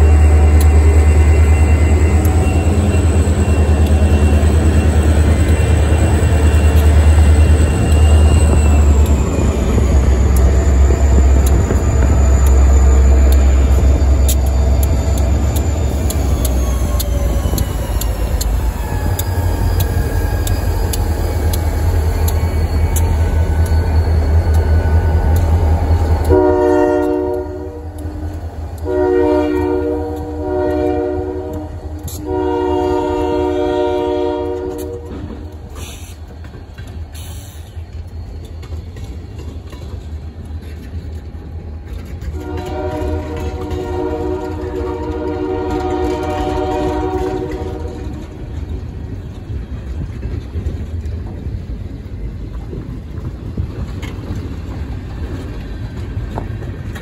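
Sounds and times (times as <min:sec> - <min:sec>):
diesel locomotive engine rumble: 0:00.0 - 0:57.0
train wheel clatter: 0:00.0 - 0:57.0
train horn blasts: 0:26.2 - 0:35.5, 0:42.2 - 0:48.4.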